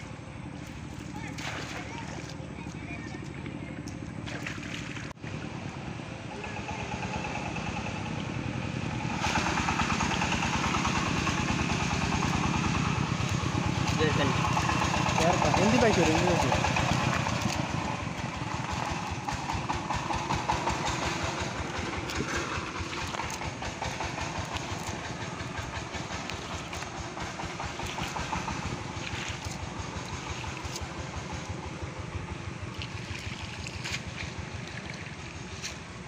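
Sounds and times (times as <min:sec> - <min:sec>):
small engine pulsing: 0:00.0 - 0:36.0.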